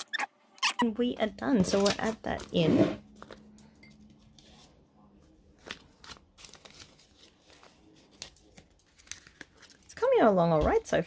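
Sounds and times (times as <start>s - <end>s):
plastic banknotes crinkling: 5.5s - 10.4s.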